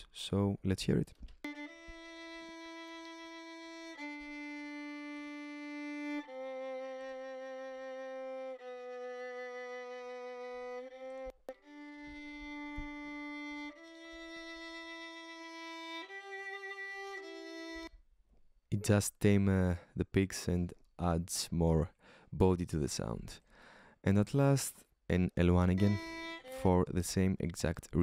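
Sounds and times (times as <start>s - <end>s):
solo violin long bowed notes: 1.5s - 17.9s, 25.7s - 27.0s.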